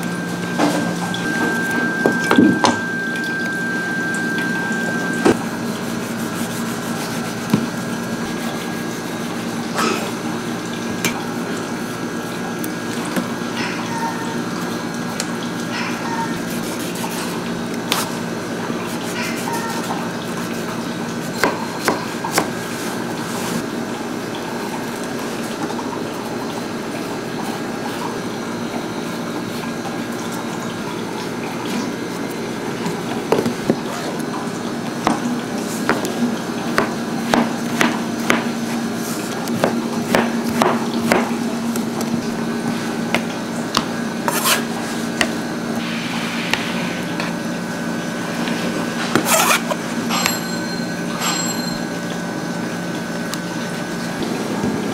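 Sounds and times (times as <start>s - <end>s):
steady machine hum: 0.0s - 54.9s
utensils and dishes clinking: 48.9s - 52.3s.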